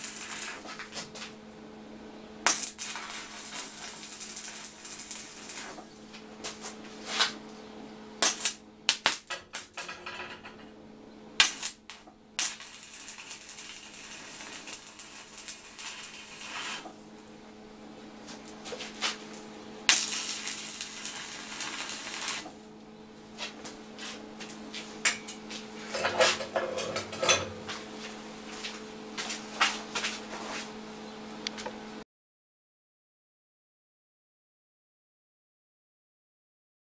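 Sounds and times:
welding arc crackling and hissing: 0.0 - 1.4, 2.4 - 7.4, 8.2 - 9.8, 11.4 - 17.1, 18.3 - 22.6
steady low hum: 0.0 - 32.0.

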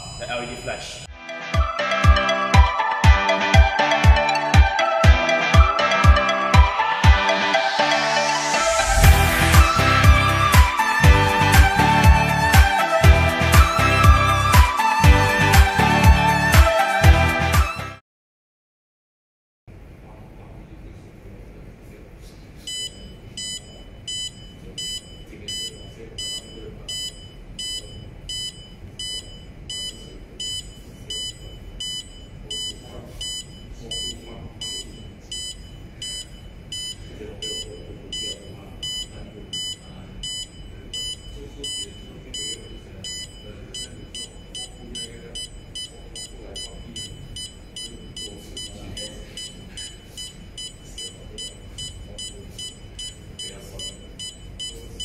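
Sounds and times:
short high-pitched beeps: 22.7 - 55.0.

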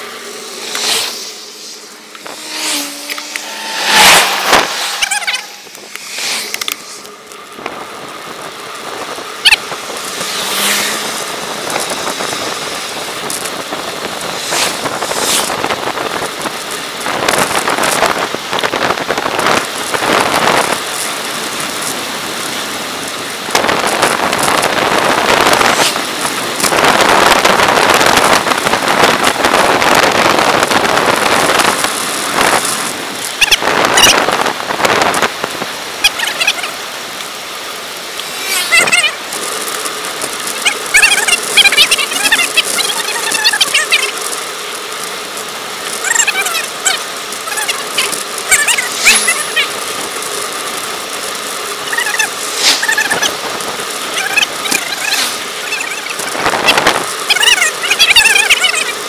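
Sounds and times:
tyre noise on asphalt: 0.0 - 59.0
wind rushing over microphone: 0.3 - 20.8, 23.4 - 36.2, 52.0 - 57.3.

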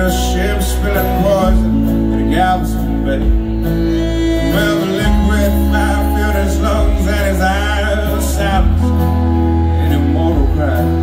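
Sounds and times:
live country band playing: 0.0 - 11.0.

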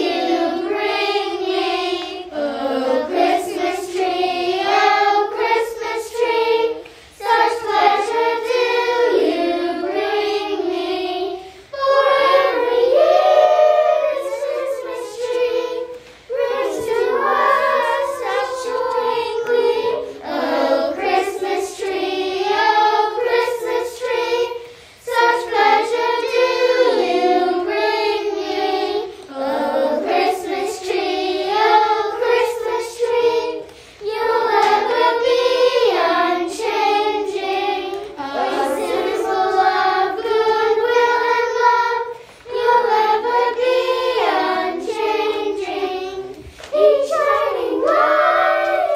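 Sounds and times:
young girls singing a carol: 0.0 - 48.9.

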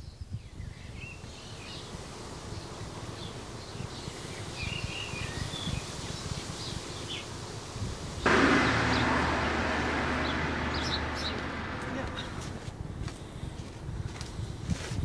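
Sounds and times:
irregular low rumble: 8.3 - 12.7
steady rushing noise: 8.3 - 12.7.

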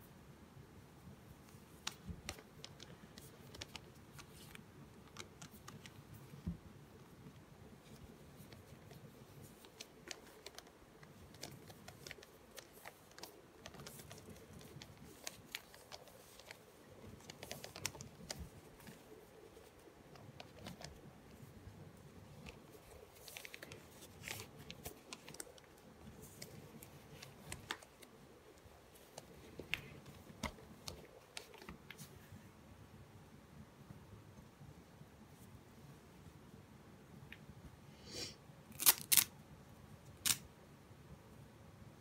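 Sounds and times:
cloth rustling: 7.8 - 32.3.

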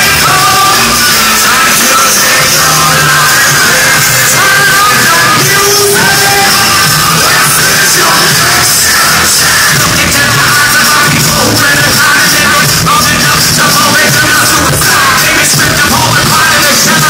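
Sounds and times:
loud backing music: 0.0 - 17.0
person rapping yelled vocals: 0.0 - 17.0.

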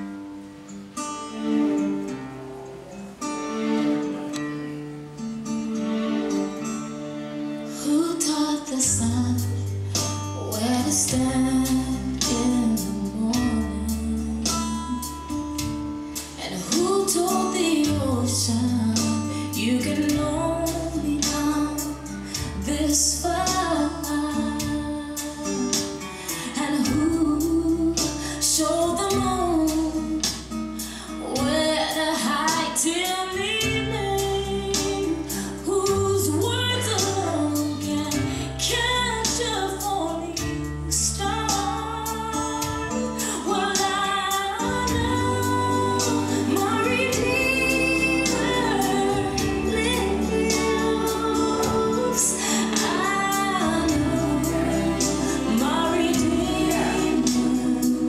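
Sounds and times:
guitar: 0.0 - 58.0
woman singing gospel: 7.8 - 9.7, 10.4 - 15.1, 16.4 - 30.3, 31.0 - 58.0
held bass notes: 44.5 - 58.0.

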